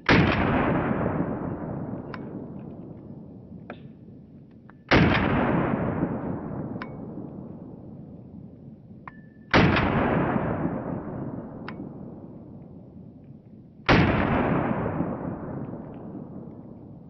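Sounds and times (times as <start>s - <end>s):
pistol shots echoing: 0.0s - 3.2s, 4.9s - 7.8s, 9.5s - 12.4s, 13.9s - 16.8s.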